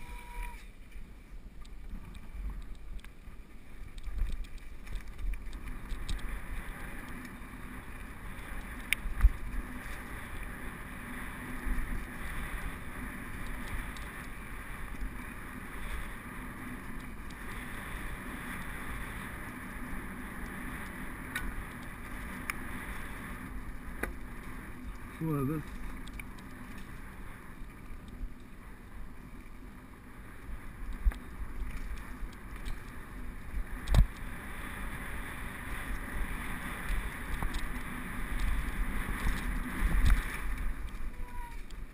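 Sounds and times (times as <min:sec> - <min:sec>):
bike tyres on gravel: 0:00.0 - 0:41.9
wind on microphone: 0:30.3 - 0:41.9.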